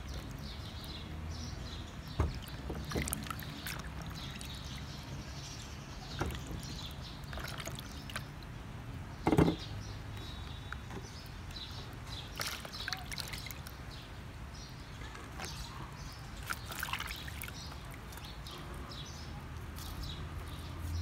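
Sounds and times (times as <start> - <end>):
water trickling and dripping: 0.0 - 14.5, 15.4 - 20.8
hands splashing water in basin: 2.3 - 5.4, 6.1 - 8.5, 12.2 - 13.8, 16.4 - 18.5.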